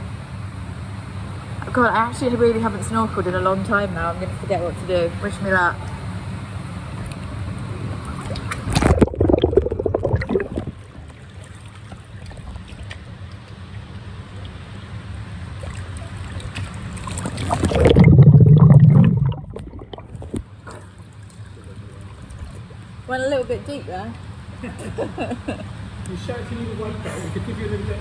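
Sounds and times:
deep rush of water and bubbles: 7.0 - 13.2, 13.8 - 23.0
water splashing and gurgling: 7.6 - 23.0.

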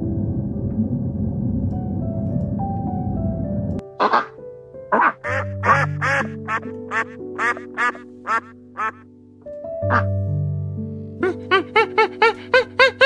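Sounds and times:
slow piano music: 0.0 - 13.0
duck quacking: 4.0 - 9.0, 9.9 - 10.1.

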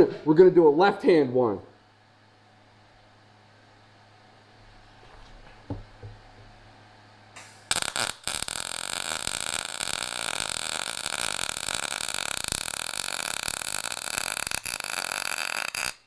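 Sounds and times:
welder arc crackling: 7.3 - 16.0.

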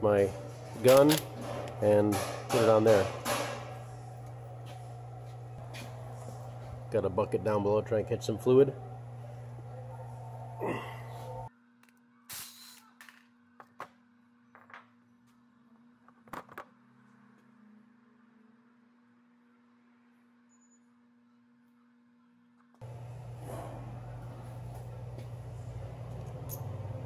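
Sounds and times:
steady low hum: 0.0 - 11.5, 22.8 - 27.0
tools and metal parts clicking: 0.8 - 3.5.

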